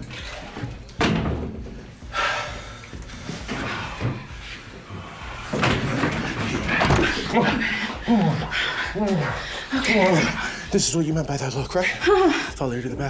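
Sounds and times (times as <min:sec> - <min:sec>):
stall door banging shut: 0:01.0 - 0:01.8, 0:05.5 - 0:07.4.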